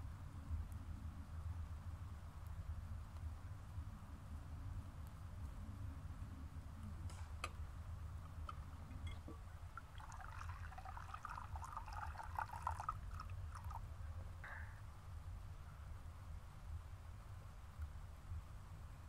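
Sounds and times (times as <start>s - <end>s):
liquid trickling into a bowl: 9.1s - 14.0s.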